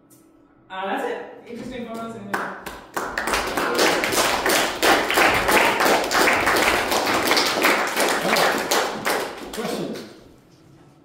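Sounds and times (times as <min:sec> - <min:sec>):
audience applauding: 0:02.7 - 0:10.2.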